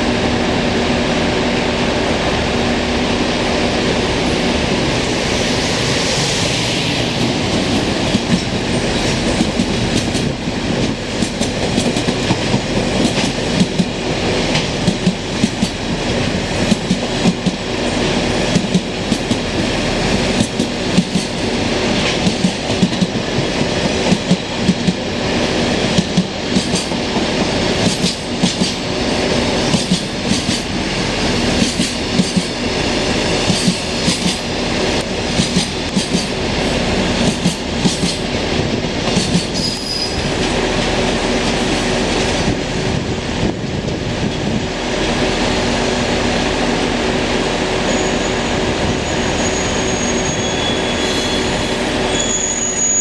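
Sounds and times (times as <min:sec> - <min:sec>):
electric locomotive passing: 0:00.0 - 0:53.0
train wheels clattering over rail joints: 0:07.2 - 0:19.6, 0:20.2 - 0:25.1, 0:25.8 - 0:32.6, 0:33.4 - 0:42.6.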